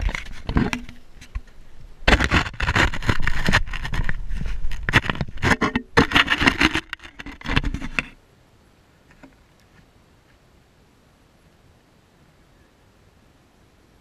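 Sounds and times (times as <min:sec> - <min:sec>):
camera handling scraping: 0:00.0 - 0:08.2
faint background hiss: 0:00.0 - 0:14.0.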